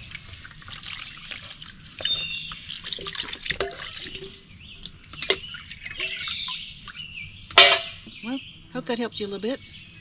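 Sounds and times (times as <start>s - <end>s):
water splashing and dripping: 0.0s - 7.0s.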